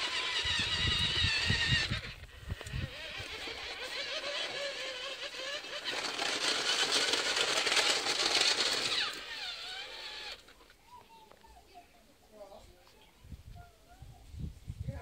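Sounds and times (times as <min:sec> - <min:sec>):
electric gear motors whining: 0:00.0 - 0:10.8
tracks rattling: 0:00.0 - 0:10.8.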